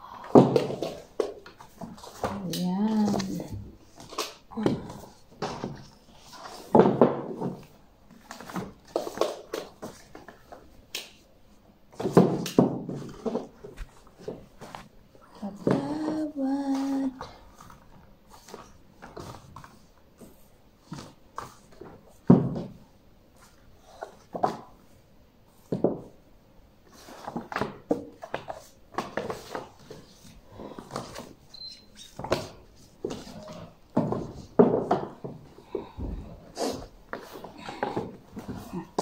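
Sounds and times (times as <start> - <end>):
books knocking on wooden ledges: 6.7 - 7.7, 12.0 - 14.4, 21.8 - 22.8, 32.2 - 36.4.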